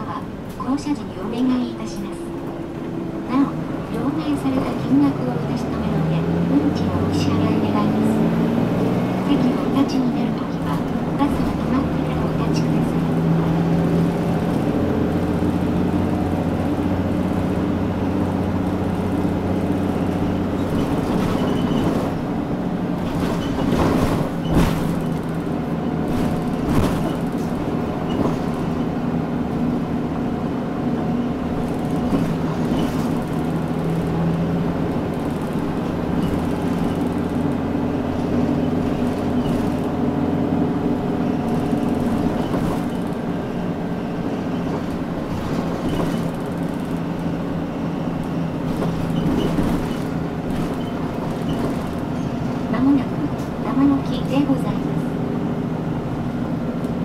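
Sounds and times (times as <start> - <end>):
bus diesel engine: 0.0 - 57.0
road noise: 0.0 - 57.0.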